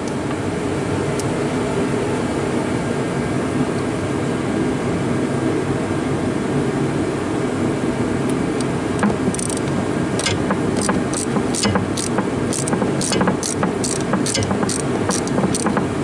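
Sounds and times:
tractor engine running: 9.0s - 16.0s
oil spraying from valve: 9.3s - 15.9s.

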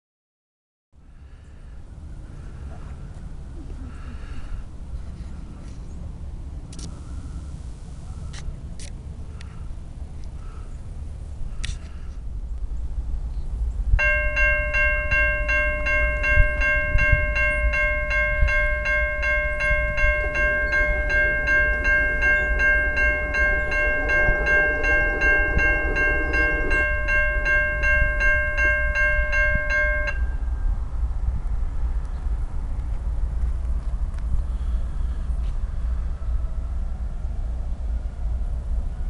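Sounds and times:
low outdoor rumble: 1.0s - 39.0s
railroad crossing bell ringing: 14.0s - 30.8s.

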